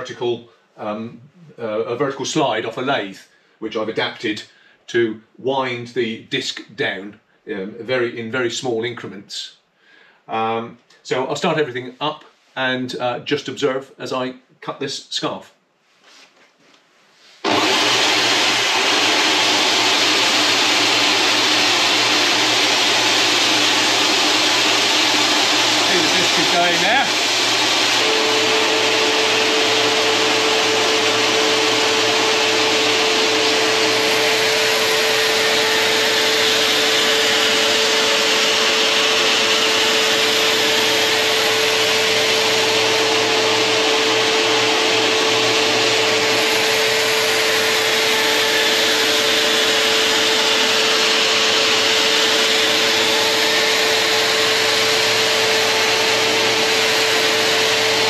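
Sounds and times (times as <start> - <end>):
sanding disc running: 17.4 - 58.0
vacuum cleaner running: 17.4 - 58.0.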